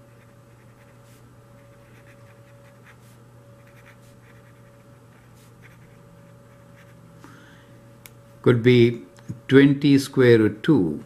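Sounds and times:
faint steady hum: 0.0 - 11.0
marker scratching on whiteboard: 0.1 - 7.0.

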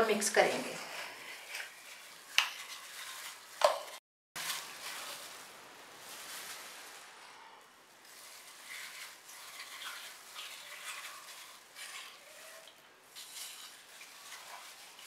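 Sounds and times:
wet squelching of marinade paste: 8.0 - 15.0.

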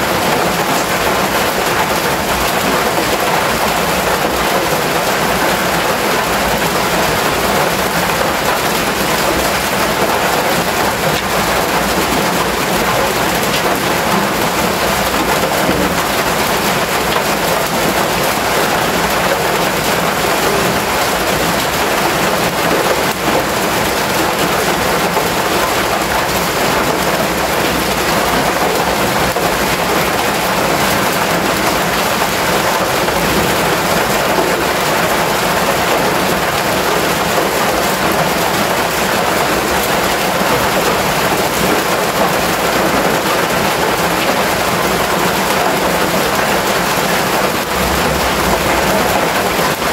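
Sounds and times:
rain on metal roof: 0.0 - 49.9.

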